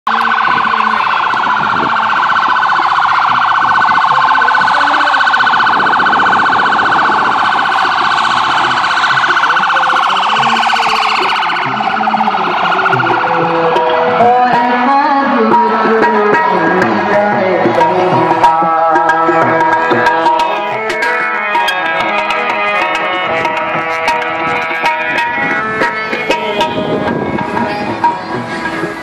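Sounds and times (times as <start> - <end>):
police siren yelping: 0.1 - 29.0
music: 7.0 - 29.0.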